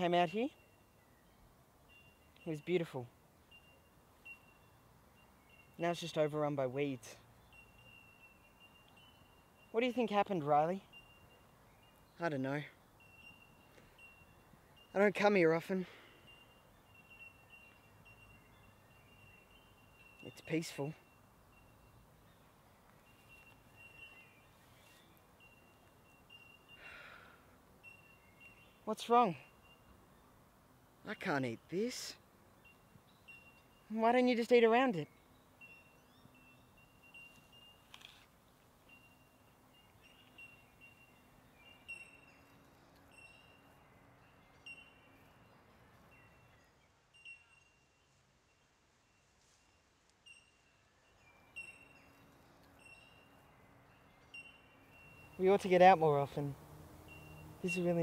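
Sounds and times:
bird chirping: 0.0 - 30.4, 31.0 - 48.8, 50.2 - 58.0
low steady hiss: 0.0 - 58.0
thin high steady tone: 49.2 - 58.0.

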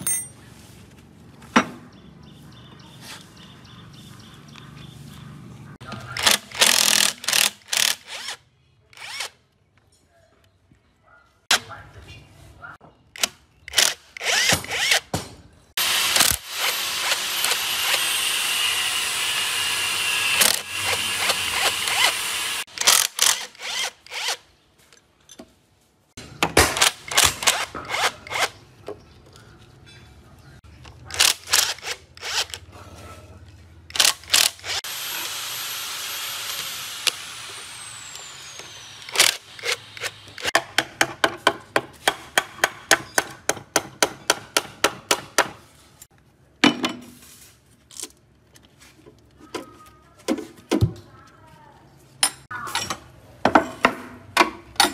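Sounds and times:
power tool driving bolts: 6.2 - 8.4, 13.2 - 15.1, 15.8 - 24.4, 26.6 - 28.5, 33.9 - 40.6.

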